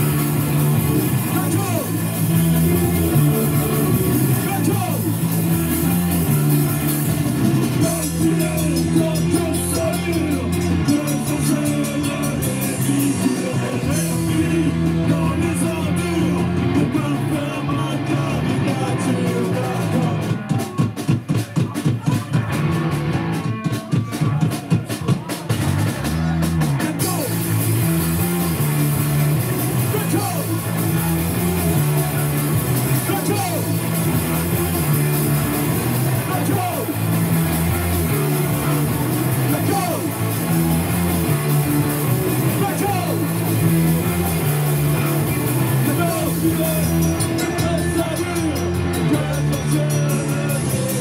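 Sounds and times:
drum kit with cymbals: 0.0s - 51.0s
live rock band playing: 0.0s - 51.0s
person singing: 7.6s - 21.0s, 28.3s - 51.0s.

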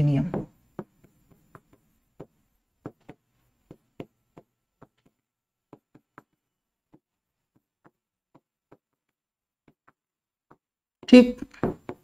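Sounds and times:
pen tapping on writing board: 0.3s - 10.7s, 11.6s - 12.0s.

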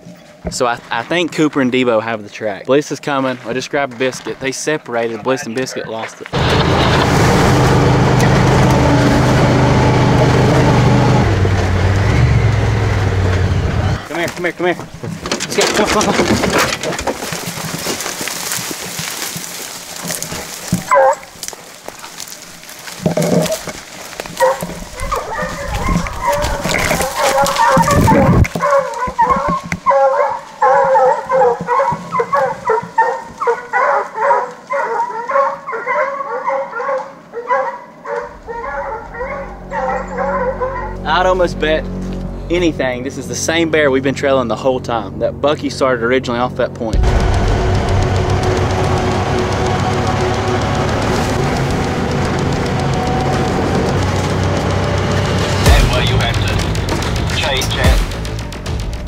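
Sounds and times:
utv engine running: 6.3s - 29.7s, 46.9s - 59.0s
dog barking: 20.9s - 21.3s, 24.4s - 41.0s.

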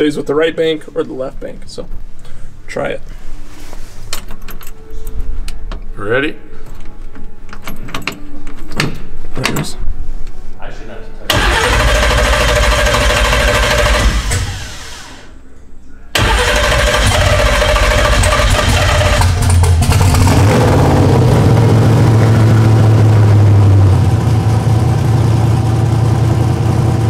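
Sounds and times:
car engine starting and idling: 11.3s - 15.4s, 16.1s - 27.0s.

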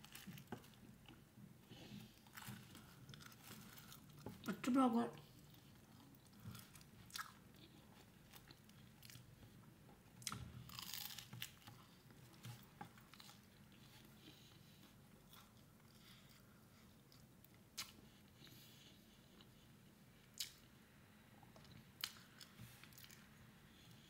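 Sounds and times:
chewing crunchy sandwich: 0.0s - 1.2s, 1.8s - 4.5s, 5.2s - 18.7s, 20.3s - 20.7s, 21.6s - 24.0s.

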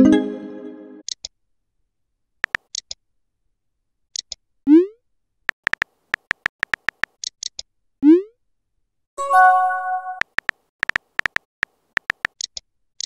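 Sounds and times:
phone keyboard taps: 2.4s - 2.7s, 5.5s - 7.2s, 10.2s - 12.4s.

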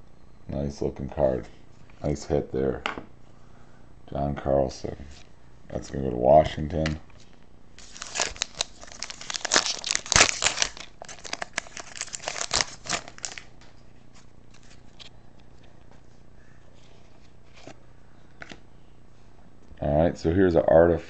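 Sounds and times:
faint handling of cards: 4.8s - 19.7s
foil wrapper tearing and crinkling: 7.8s - 13.5s.

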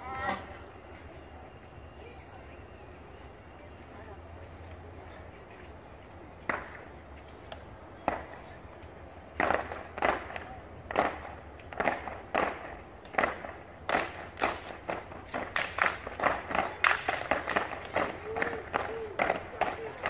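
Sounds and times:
stomps and hand claps: 6.4s - 6.8s, 9.4s - 20.0s.

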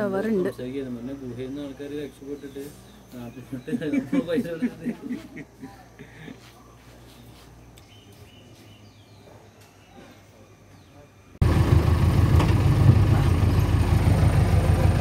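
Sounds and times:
jeep engine running: 11.4s - 15.0s.

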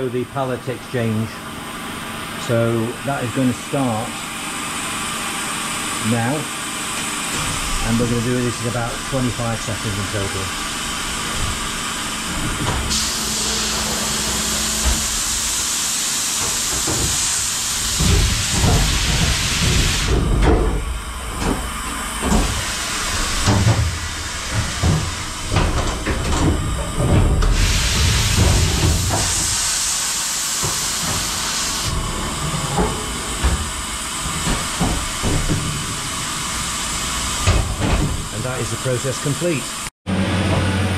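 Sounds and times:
pneumatic hiss: 7.0s - 39.9s
heavy clunks of pallets shuttling: 16.5s - 29.5s, 30.8s - 38.6s.

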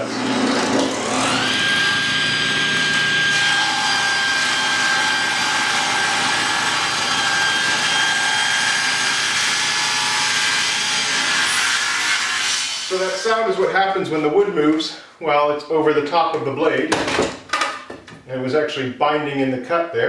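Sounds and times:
table saw whine: 0.0s - 13.3s.

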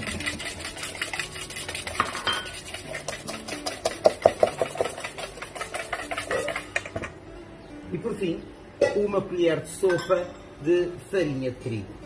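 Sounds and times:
whisk clinking in metal bowl: 0.0s - 7.0s.

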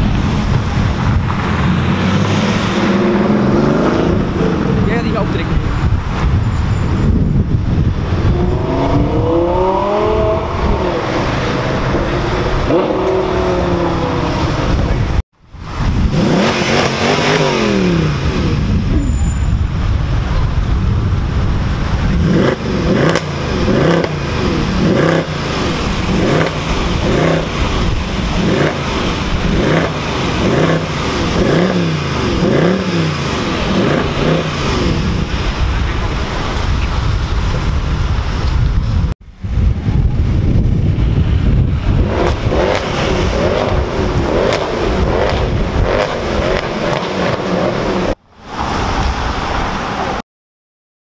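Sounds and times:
sports car engine accelerating: 0.0s - 5.2s, 7.9s - 15.2s, 15.9s - 19.1s, 22.0s - 36.4s, 41.8s - 48.2s
car engine revving: 0.0s - 6.7s, 7.4s - 37.7s, 41.0s - 49.5s.

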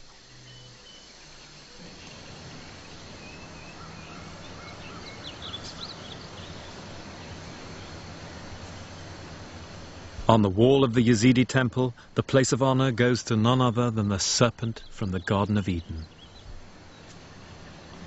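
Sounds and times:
bird chirps: 0.0s - 9.2s, 11.0s - 18.0s
quick bird calls: 0.0s - 9.2s.

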